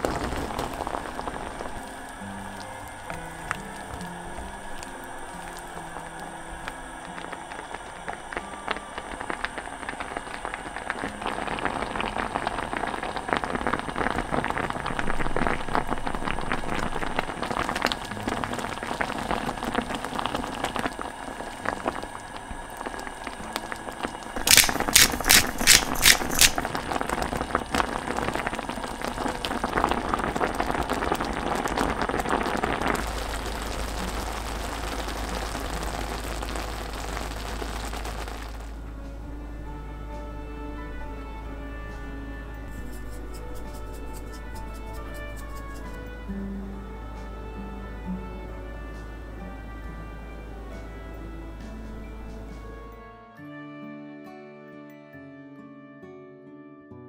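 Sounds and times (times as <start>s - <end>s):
sauce bubbling in a pan: 0.0s - 38.8s, 42.7s - 46.1s.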